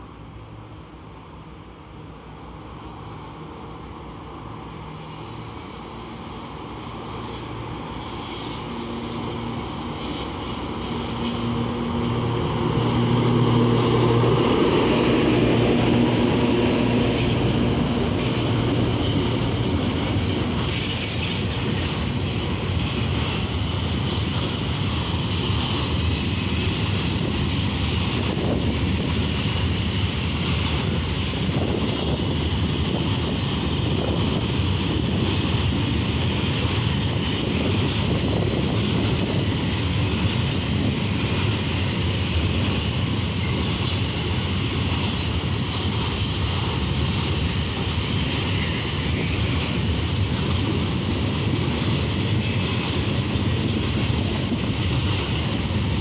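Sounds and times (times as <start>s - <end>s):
diesel locomotive engine drone: 0.0s - 56.0s
train wheels clattering on rails: 5.1s - 56.0s.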